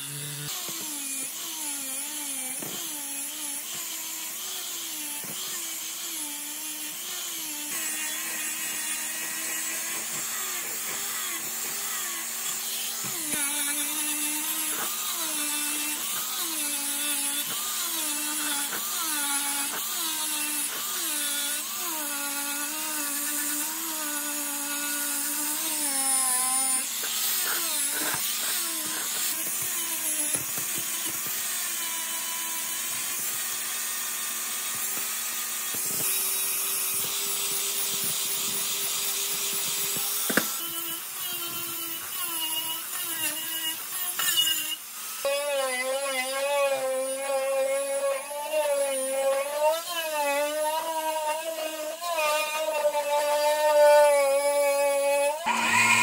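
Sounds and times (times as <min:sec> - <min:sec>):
angle grinder wire brush on metal: 0:55.3 - 0:56.0.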